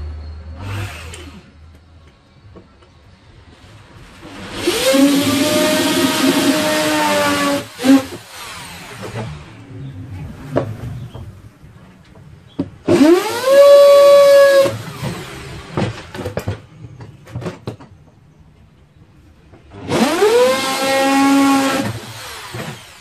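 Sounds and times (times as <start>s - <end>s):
electric drill whining: 4.3s - 9.6s, 12.9s - 16.2s, 19.7s - 23.0s.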